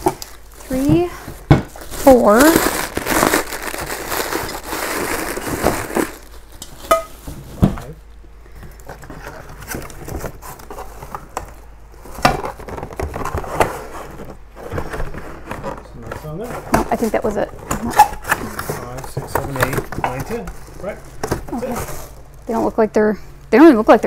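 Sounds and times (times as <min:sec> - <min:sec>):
packaging crinkling: 0:00.0 - 0:06.9.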